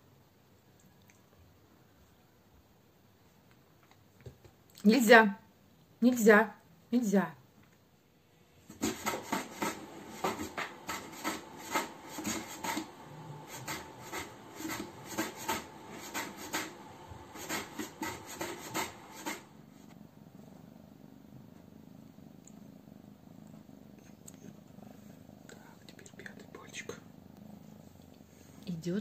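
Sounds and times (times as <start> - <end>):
kitten purring: 8.5 - 29.0
kitten scratching cardboard box: 8.7 - 19.5.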